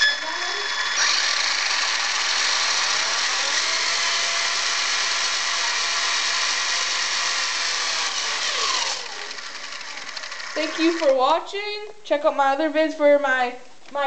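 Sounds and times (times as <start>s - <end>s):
rc truck motor high whine: 0.0s - 11.1s.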